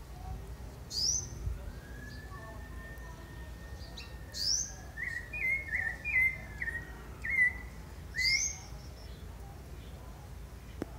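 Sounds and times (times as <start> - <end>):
thrush singing whistled phrases: 0.9 - 8.7.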